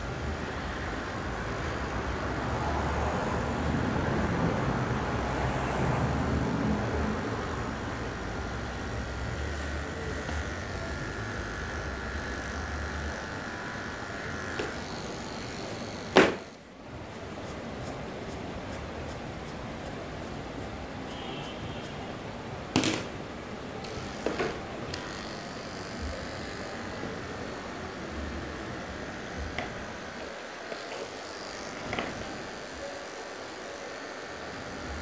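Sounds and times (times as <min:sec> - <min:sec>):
electric hair clippers buzzing: 0:00.0 - 0:03.1, 0:04.8 - 0:22.0, 0:22.6 - 0:35.0
sharp knock: 0:16.2 - 0:16.5.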